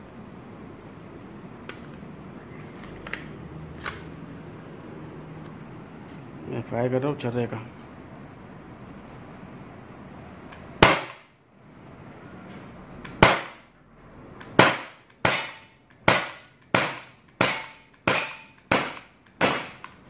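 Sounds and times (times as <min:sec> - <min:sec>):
air pistol shots cracking: 0:10.8 - 0:11.3, 0:13.2 - 0:13.6, 0:14.4 - 0:19.9.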